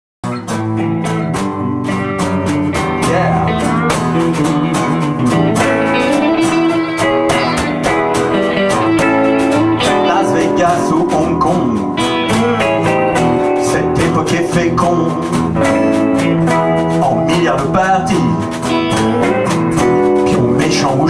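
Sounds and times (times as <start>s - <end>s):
acoustic guitar: 0.2s - 21.0s
electric guitars: 0.2s - 21.0s
steady drum beat: 0.5s - 21.0s.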